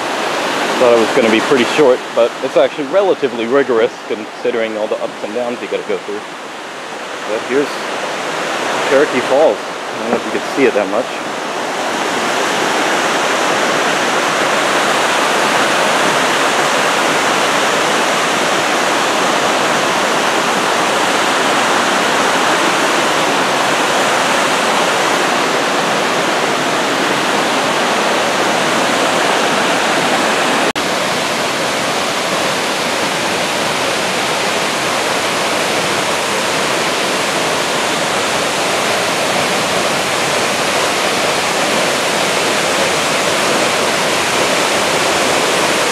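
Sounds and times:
waterfall pouring into pool: 0:00.0 - 0:06.0, 0:29.7 - 0:45.9
creek rushing over rocks: 0:00.0 - 0:45.9.

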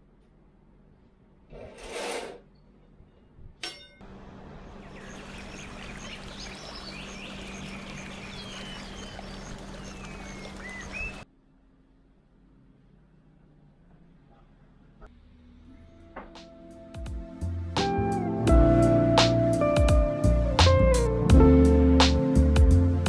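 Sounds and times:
sharp clink: 0:03.6 - 0:04.0
running water trickling: 0:04.1 - 0:11.2
birds chirping and whistling: 0:04.6 - 0:11.2.

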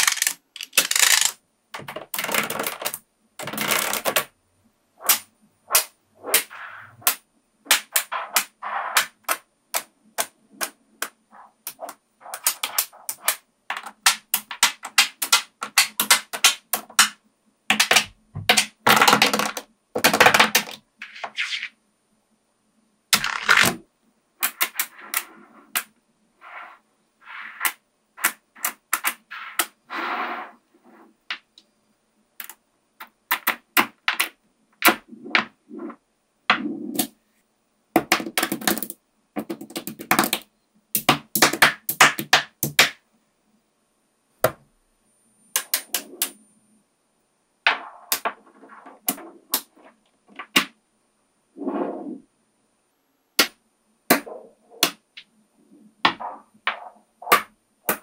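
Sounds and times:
magnetic metal balls clicking: 0:00.0 - 0:04.3, 0:05.0 - 0:20.9, 0:32.4 - 0:35.5, 0:45.5 - 0:46.5.

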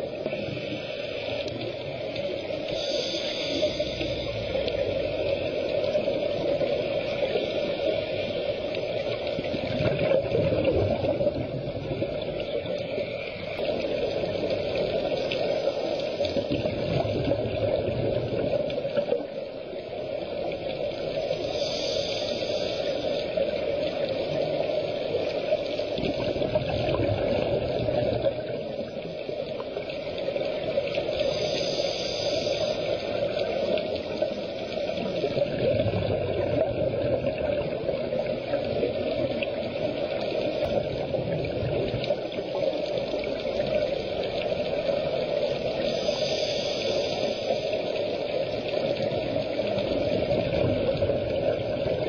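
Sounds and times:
steady underwater rush: 0:00.0 - 0:52.0
regulator inhalation hiss: 0:00.3 - 0:05.9, 0:20.8 - 0:23.8, 0:30.4 - 0:35.4, 0:42.6 - 0:49.7.

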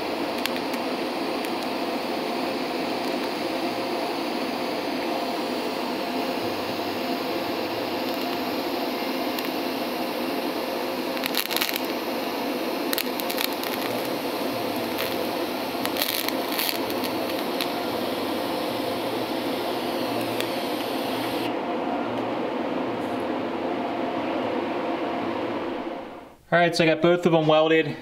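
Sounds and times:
welding arc hissing and crackling: 0:00.0 - 0:21.5.

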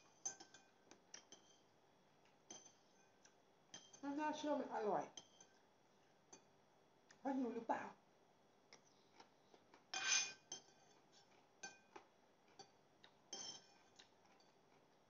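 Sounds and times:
cutlery clinking on plate: 0:00.0 - 0:01.7, 0:02.5 - 0:04.0, 0:09.9 - 0:14.9
cutlery scraping plate: 0:00.0 - 0:01.7, 0:02.5 - 0:04.0, 0:05.2 - 0:05.6, 0:09.9 - 0:14.9.

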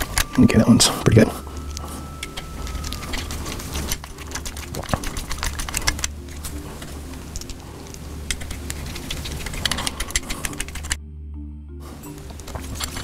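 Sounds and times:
steady low hum: 0:00.0 - 0:13.0
screwdriver clicking on screws: 0:08.3 - 0:11.0.

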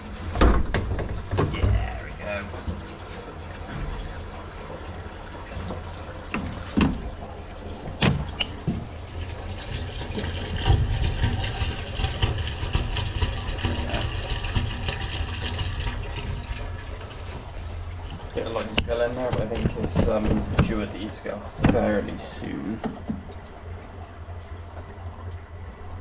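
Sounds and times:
plastic pipe fittings knocking: 0:18.7 - 0:20.8.

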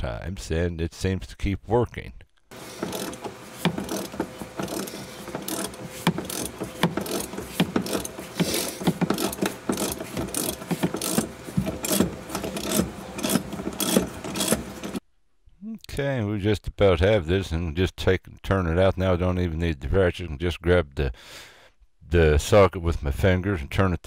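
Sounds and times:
hand ratchet clicking: 0:02.5 - 0:15.0.

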